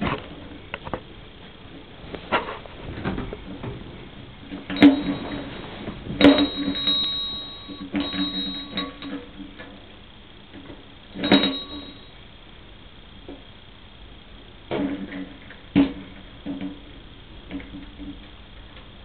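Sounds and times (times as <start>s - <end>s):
fire engine bell ringing: 4.7s - 9.4s, 11.2s - 12.2s.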